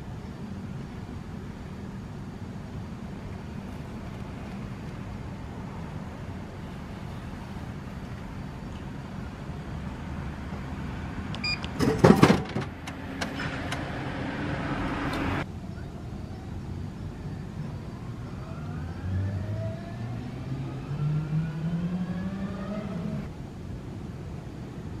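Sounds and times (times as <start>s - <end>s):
vehicle engine accelerating: 12.8s - 15.4s, 18.4s - 23.3s.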